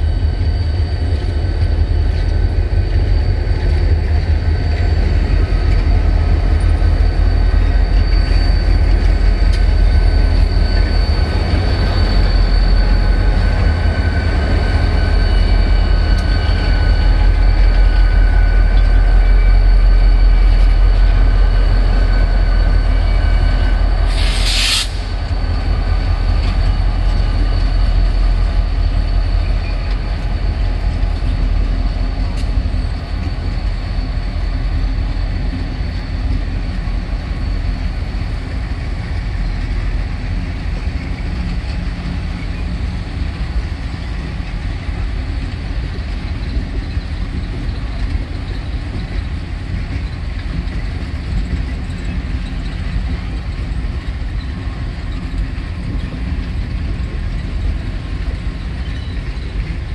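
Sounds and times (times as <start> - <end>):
freight train rumbling past: 0.0 - 59.9
brief hiss: 24.1 - 25.2.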